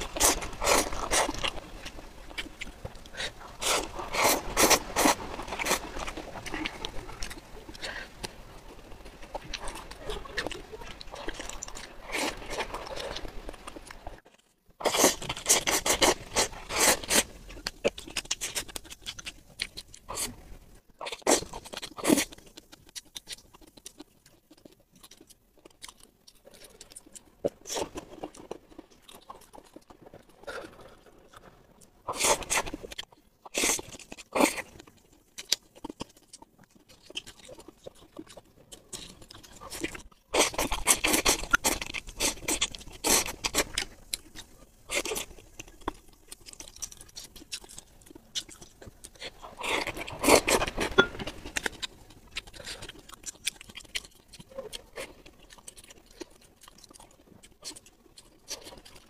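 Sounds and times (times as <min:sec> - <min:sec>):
slurping noodles: 0:00.0 - 0:01.6, 0:03.1 - 0:08.0, 0:14.8 - 0:17.3
chewing: 0:00.0 - 0:59.0.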